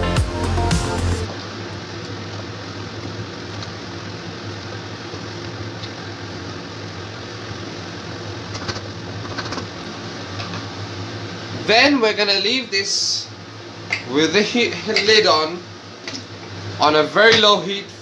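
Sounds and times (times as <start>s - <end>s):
low hum and hiss: 0.0s - 18.0s.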